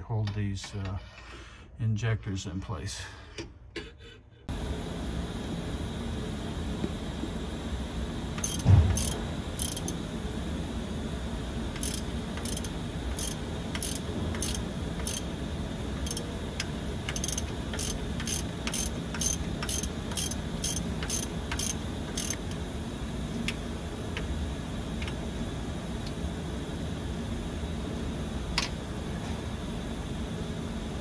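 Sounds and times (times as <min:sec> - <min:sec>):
low background hum: 0:00.0 - 0:31.0
hand ratchet clicking: 0:08.4 - 0:10.0, 0:11.8 - 0:15.2, 0:16.0 - 0:16.3, 0:17.1 - 0:22.4.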